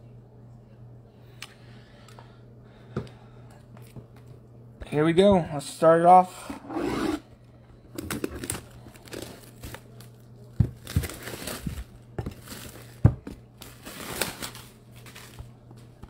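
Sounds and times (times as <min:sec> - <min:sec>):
plastic wrap crinkling: 0:08.0 - 0:15.9.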